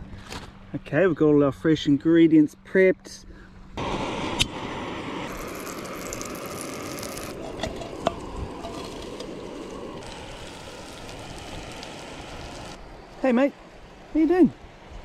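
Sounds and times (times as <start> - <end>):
fish frying: 3.9 - 12.8
butter sizzling in frying pan: 5.3 - 12.8.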